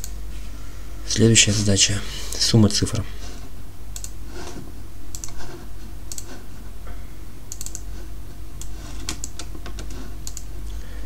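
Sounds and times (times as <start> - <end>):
steady low hum: 0.0 - 11.0
computer keyboard clicks and taps: 9.0 - 10.5.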